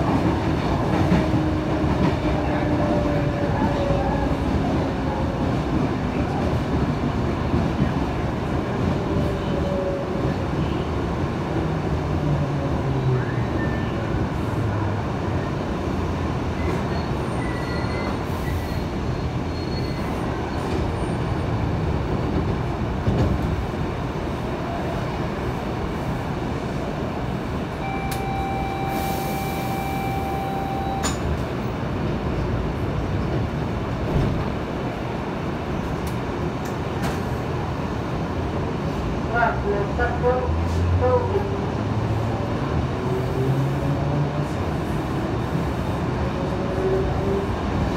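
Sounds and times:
train rumble and rattle: 0.0 - 47.9
high steady tone: 27.8 - 31.3.

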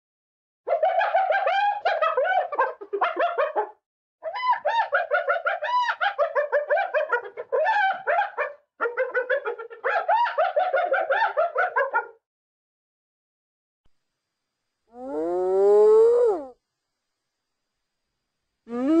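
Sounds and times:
hyena laughing: 0.7 - 3.6.

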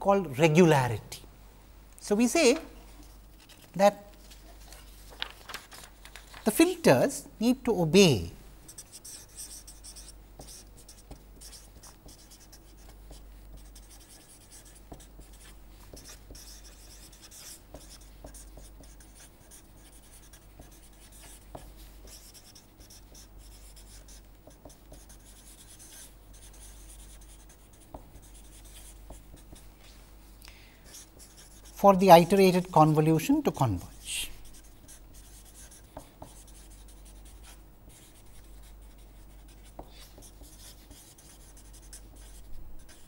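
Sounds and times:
marker scratching on paper: 8.7 - 30.0, 30.9 - 32.7, 34.1 - 43.0.

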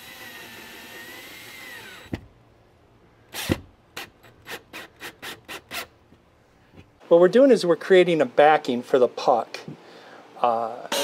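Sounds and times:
cordless drill whining: 0.0 - 2.2.

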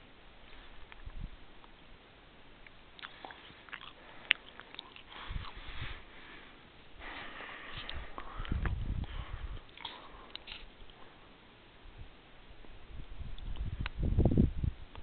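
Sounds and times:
wind rumbling on microphone: 0.6 - 1.6, 4.9 - 6.2, 7.7 - 9.8, 11.8 - 15.0.

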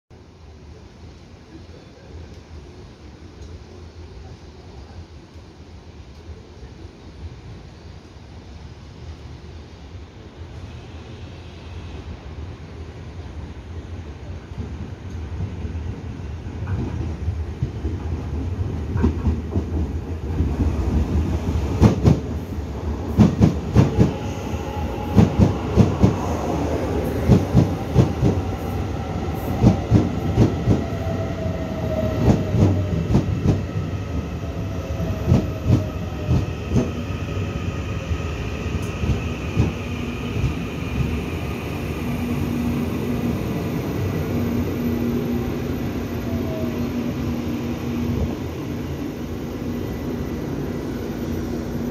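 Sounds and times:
low train hum: 0.1 - 51.9
train whine falling in pitch: 23.2 - 33.9.

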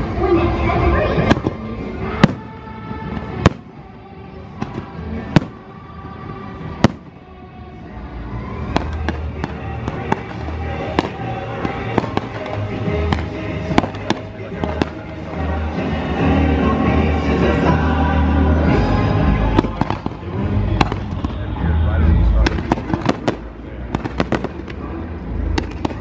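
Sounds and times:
music playing: 0.0 - 26.0
fireworks bursting: 1.1 - 7.3, 8.6 - 16.2, 19.4 - 21.6, 22.4 - 26.0
fireworks pops and crackles: 1.2 - 3.8, 4.6 - 5.7, 6.8 - 7.2, 8.6 - 15.4, 19.6 - 21.4, 22.4 - 24.9, 25.5 - 26.0.

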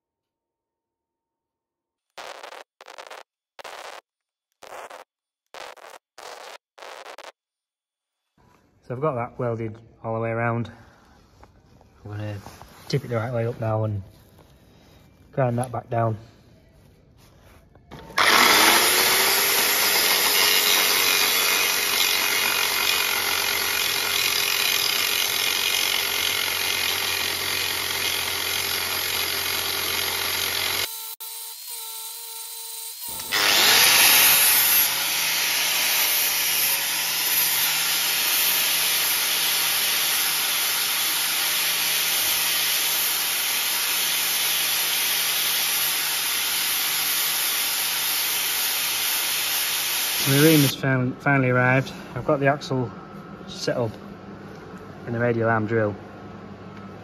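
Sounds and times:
angle grinder grinding metal: 17.9 - 50.8.

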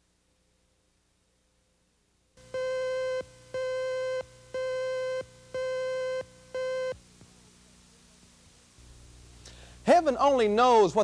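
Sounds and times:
buzzy electronic beeps: 2.4 - 7.0.

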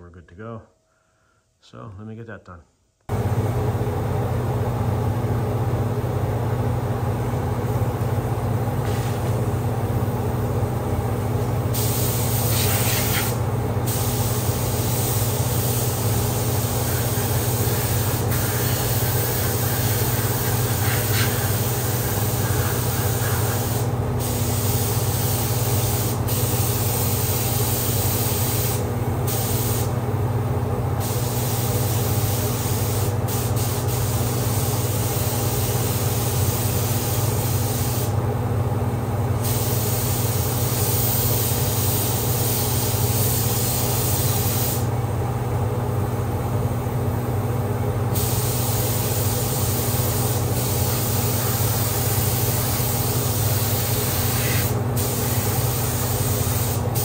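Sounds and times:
exhaust fan humming: 3.1 - 57.0
paint spray gun hissing: 11.7 - 29.9, 31.0 - 38.2, 39.4 - 44.9, 48.1 - 57.0.

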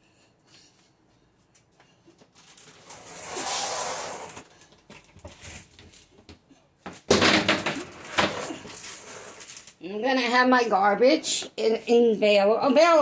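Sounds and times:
short scraping rush: 2.8 - 4.5.

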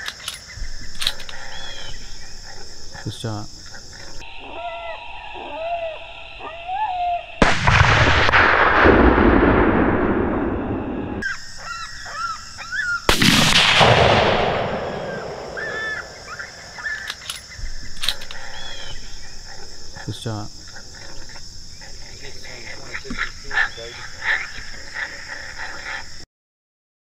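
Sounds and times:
high wavering calls: 0.0 - 7.4, 11.2 - 13.1, 14.9 - 26.2
rifle shots echoing: 7.4 - 11.2, 13.1 - 18.4.

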